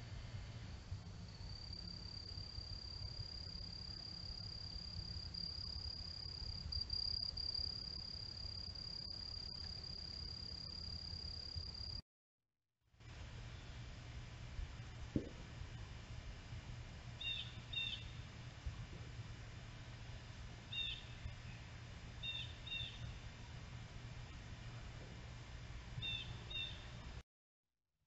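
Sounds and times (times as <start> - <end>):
low steady rumble: 0.0 - 12.0, 13.0 - 27.2.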